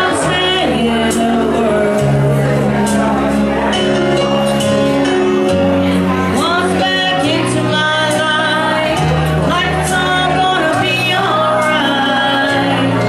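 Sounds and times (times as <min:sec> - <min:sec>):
woman singing into microphone: 0:00.0 - 0:03.3, 0:06.0 - 0:13.0
backing track music: 0:00.0 - 0:13.0.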